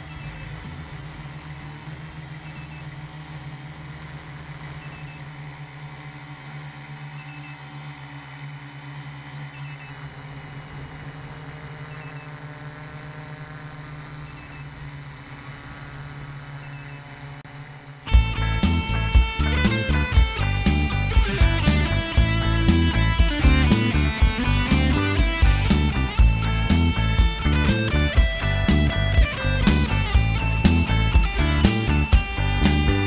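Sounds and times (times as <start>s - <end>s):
drone propellers humming: 0.0s - 33.0s
loud guitar song: 18.1s - 33.0s.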